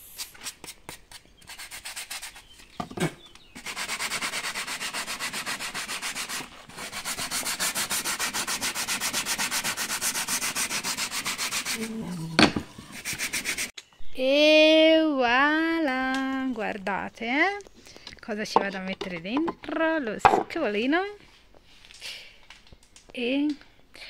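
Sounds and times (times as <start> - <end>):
sanding block rasping on wood: 0.4 - 2.5, 3.6 - 12.1, 12.7 - 13.7.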